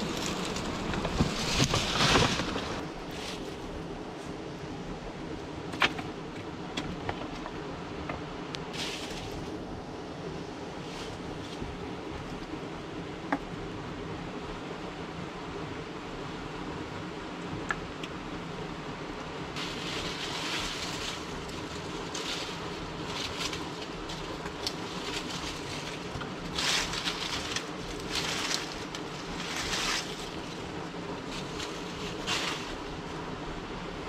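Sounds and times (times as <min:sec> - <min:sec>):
dry branches and leaves crackling: 0:00.0 - 0:04.4, 0:05.7 - 0:13.4, 0:19.3 - 0:34.0.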